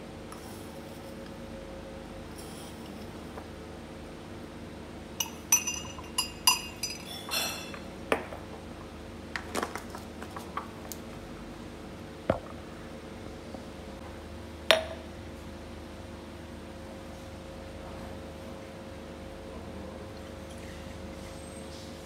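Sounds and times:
teaspoon clinking against glass mug: 5.2s - 7.8s.

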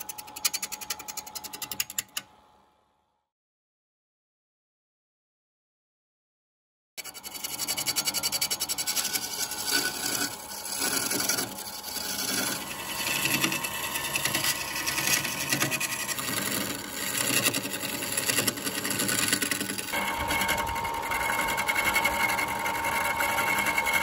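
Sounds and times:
chisel rasping on lathe: 7.0s - 24.0s.

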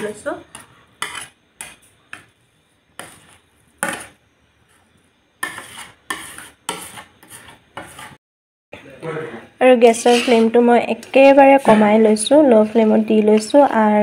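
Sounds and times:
metal spatula scraping a wok: 0.0s - 2.3s, 3.0s - 8.2s, 9.9s - 10.6s.

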